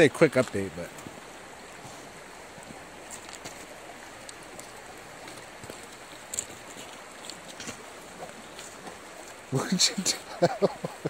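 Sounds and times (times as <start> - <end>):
river rushing over gravel: 0.0 - 11.0
faint clicks: 4.2 - 7.8.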